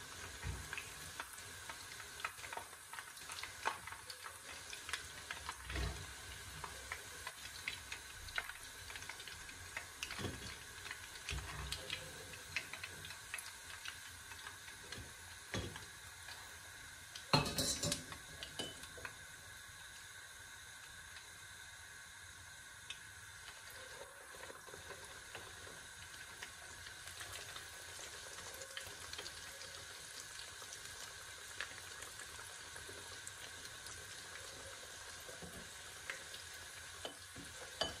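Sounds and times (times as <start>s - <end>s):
chicken deep-frying in oil: 0.0s - 38.0s.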